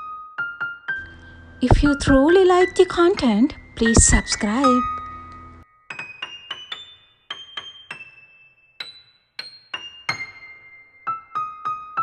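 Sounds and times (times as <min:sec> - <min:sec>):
slow high piano melody: 0:00.0 - 0:12.0.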